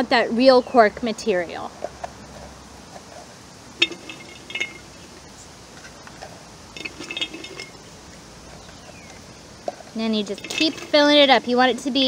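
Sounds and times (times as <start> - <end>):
stalks and corks rattling in tin can: 3.8 - 5.0, 6.8 - 7.9, 10.2 - 12.0.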